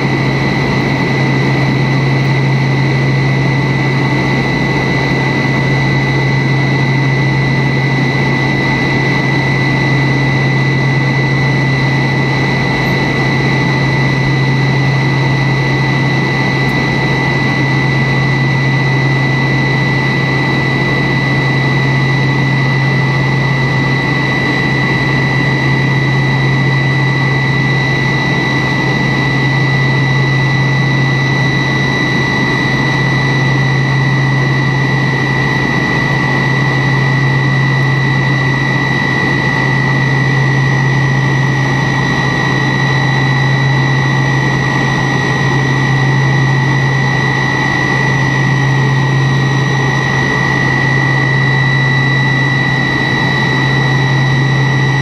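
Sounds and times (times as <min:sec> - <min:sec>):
jet cabin drone with high whine: 0:00.0 - 0:55.0.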